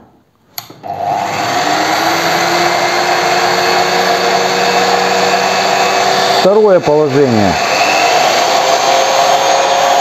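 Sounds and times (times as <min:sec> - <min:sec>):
switch click: 0:00.5 - 0:00.8
drill motor humming and whining: 0:00.8 - 0:10.0.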